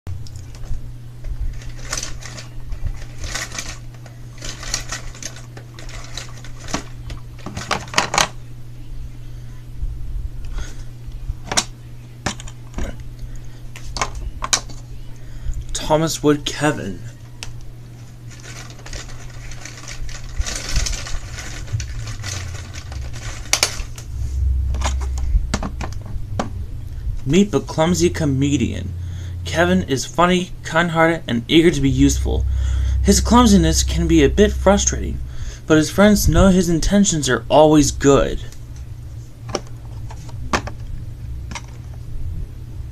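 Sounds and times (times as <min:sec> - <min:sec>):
steady low hum: 0:00.1 - 0:42.9
plastic blister pack crackling: 0:00.2 - 0:08.0, 0:17.4 - 0:24.1.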